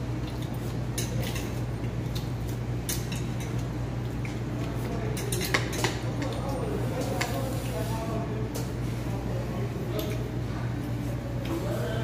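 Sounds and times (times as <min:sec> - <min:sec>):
cutlery clinking on plates: 0:05.1 - 0:07.4.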